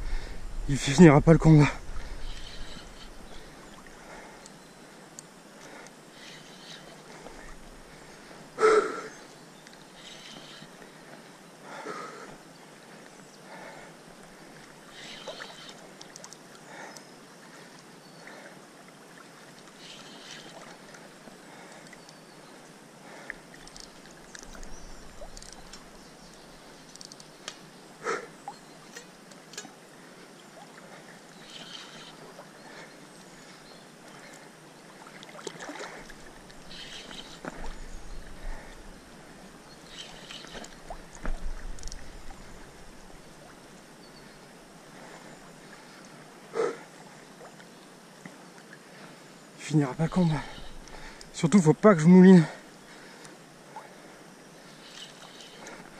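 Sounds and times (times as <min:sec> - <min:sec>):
river water lapping: 0:00.0 - 0:55.9
fishing reel clicks and creaks: 0:02.2 - 0:03.2, 0:23.6 - 0:24.6, 0:25.3 - 0:25.8, 0:26.9 - 0:27.4, 0:31.4 - 0:32.2, 0:39.9 - 0:40.8.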